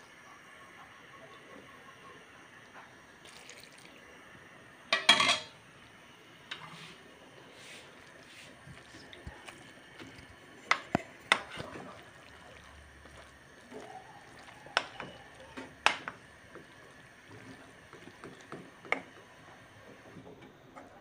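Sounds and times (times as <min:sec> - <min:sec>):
spoon stirring pasta in pot: 0:07.6 - 0:20.3
spoon knocking against pot: 0:14.4 - 0:16.2.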